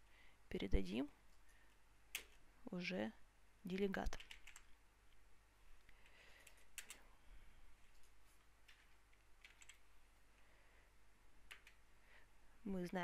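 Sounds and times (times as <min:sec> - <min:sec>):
computer keyboard keystrokes: 0:04.0 - 0:04.7, 0:06.4 - 0:07.0, 0:08.7 - 0:09.8, 0:11.5 - 0:11.8.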